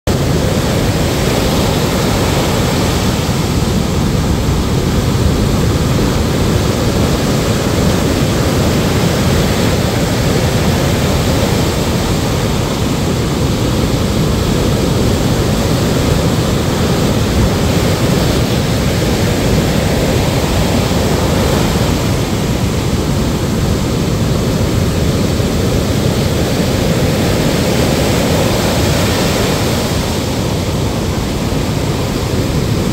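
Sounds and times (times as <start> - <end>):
deep rumble of surf: 0.1 - 32.9
waves crashing on beach: 0.1 - 32.9.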